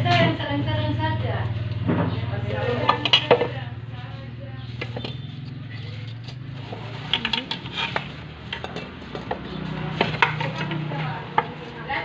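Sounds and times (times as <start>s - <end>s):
spoons clinking against bowls: 2.6s - 3.6s, 4.7s - 11.7s.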